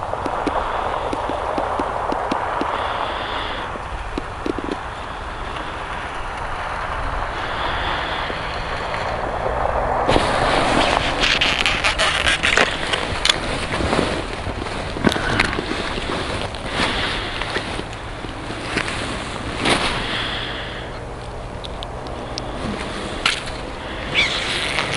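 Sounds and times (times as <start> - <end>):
steady rushing noise: 0.0 - 24.9
crackles and knocks on ice: 0.1 - 2.8, 10.1 - 20.0.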